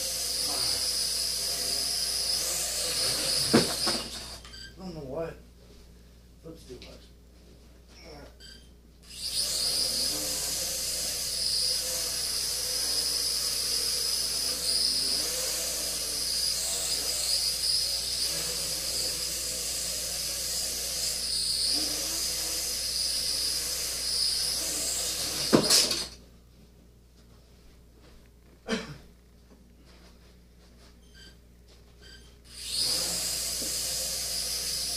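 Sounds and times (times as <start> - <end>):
quadcopter propellers whirring: 0.0 - 4.4, 9.1 - 26.2, 32.5 - 34.9.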